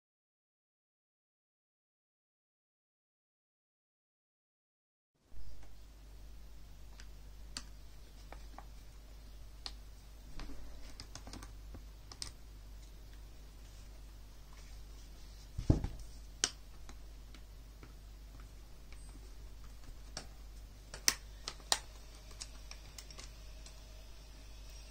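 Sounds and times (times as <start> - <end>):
steady low hum: 5.2 - 24.9.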